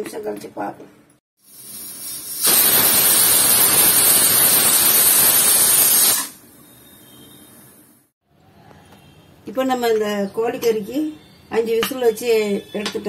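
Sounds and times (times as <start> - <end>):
pressure cooker whistling steam: 1.4 - 7.9.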